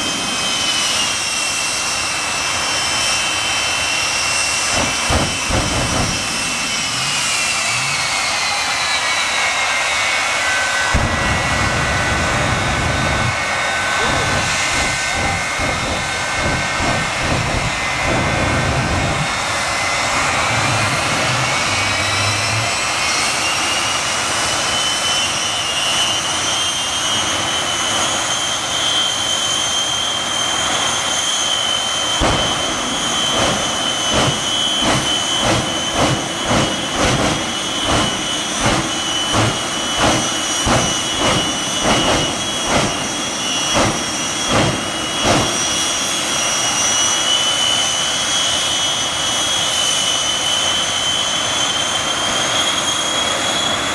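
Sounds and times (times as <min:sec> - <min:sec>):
jet engines whining: 0:00.0 - 0:53.9
deep flame bursts: 0:04.7 - 0:07.4, 0:14.0 - 0:19.3, 0:32.2 - 0:45.9.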